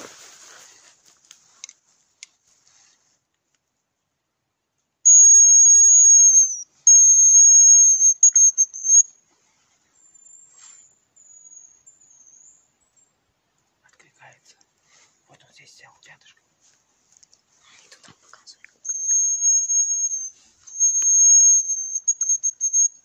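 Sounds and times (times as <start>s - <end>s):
bird answering with high whistles: 5.1s - 9.1s, 18.8s - 23.0s
high decoy whistle: 5.1s - 9.2s, 18.8s - 23.0s.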